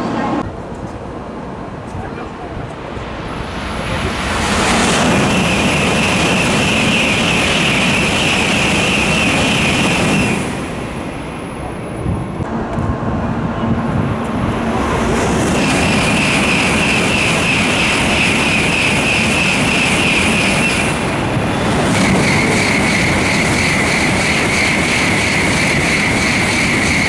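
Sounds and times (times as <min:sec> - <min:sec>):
high train whine: 0:00.0 - 0:27.0
high-speed train rushing past: 0:00.0 - 0:27.0.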